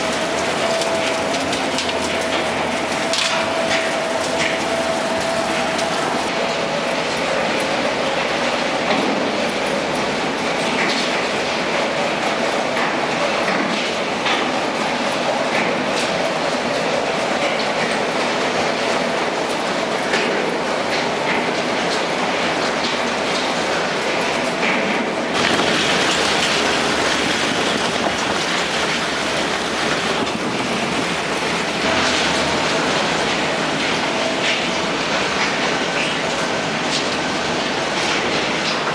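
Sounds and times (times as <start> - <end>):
sharp clanks and cracks: 0.0 - 5.9
industrial shredder din: 0.0 - 38.9.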